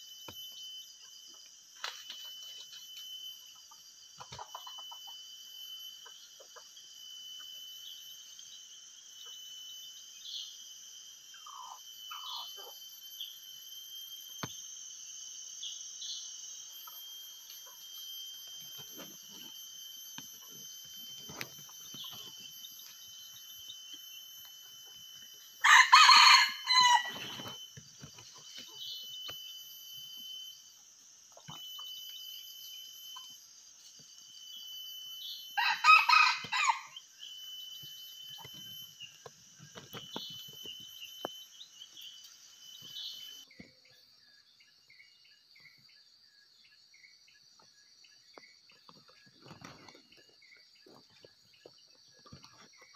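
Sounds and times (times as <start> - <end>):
high insect trilling: 0.0 - 43.6
rooster crowing: 25.6 - 27.5, 35.6 - 37.0.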